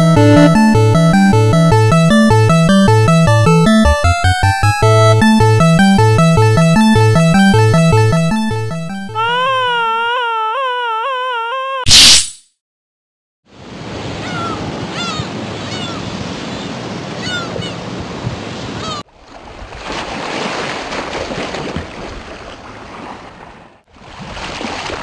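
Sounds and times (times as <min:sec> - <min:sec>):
short chirps: 0:11.9 - 0:12.5.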